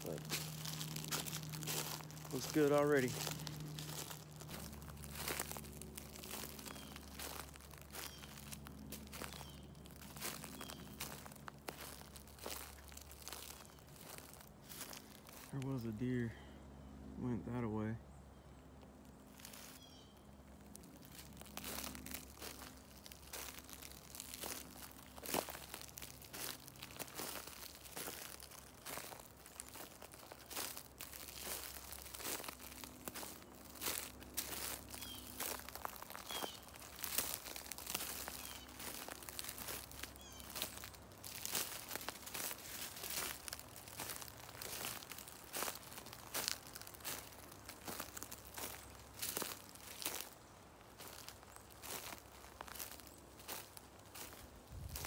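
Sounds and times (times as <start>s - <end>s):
footsteps crunching dry leaves: 0.0s - 17.8s, 18.8s - 55.0s
bird chirping: 6.5s - 7.4s, 8.0s - 8.6s, 9.2s - 11.2s, 34.9s - 35.4s, 36.1s - 36.8s, 38.3s - 38.9s, 40.2s - 40.8s.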